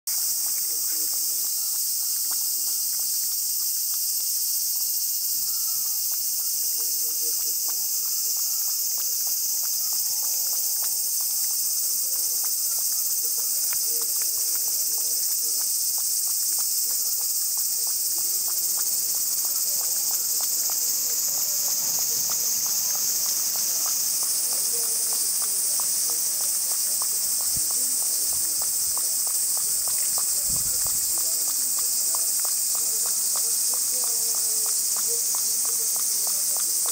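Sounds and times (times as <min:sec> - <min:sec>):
insects droning: 0:00.1 - 0:36.9
cat lapping water: 0:06.7 - 0:36.9.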